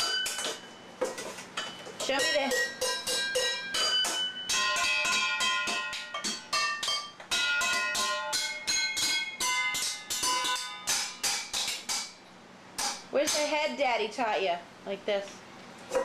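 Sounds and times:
sticks drumming on pots and pans: 0.0s - 1.2s, 2.0s - 12.2s, 12.8s - 13.6s.

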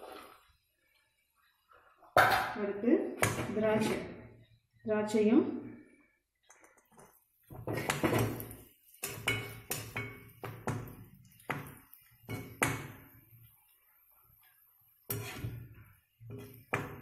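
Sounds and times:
ladle scraping and clinking in pan: 15.1s - 17.0s.

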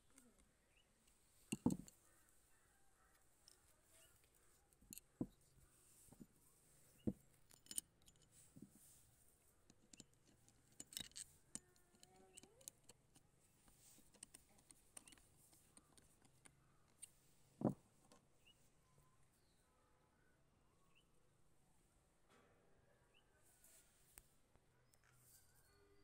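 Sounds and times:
screwdriver clicks and metallic taps: 0.1s - 2.2s, 3.0s - 5.4s, 7.0s - 8.7s, 9.6s - 18.2s.

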